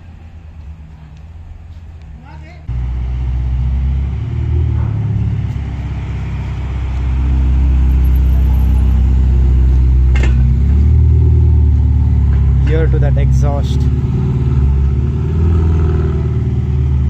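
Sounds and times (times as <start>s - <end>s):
sports car engine idling: 4.2s - 13.9s.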